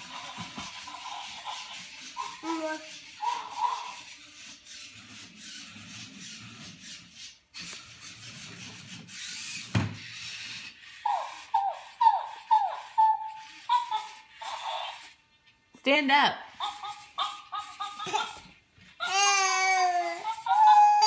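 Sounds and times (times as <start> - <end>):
robot toy electronic call: 11.1 - 15.2.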